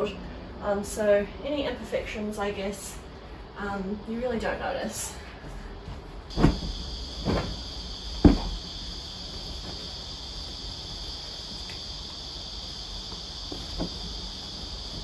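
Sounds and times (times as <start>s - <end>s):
bedding thumping on bed: 5.8s - 11.5s, 13.0s - 15.0s
high-pitched insect drone: 6.3s - 15.0s.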